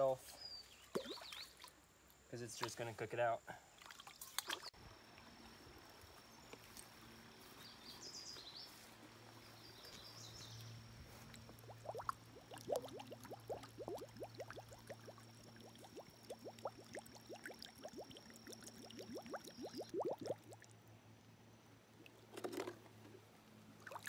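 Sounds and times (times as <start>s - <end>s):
faint steady hum: 4.8s - 24.0s.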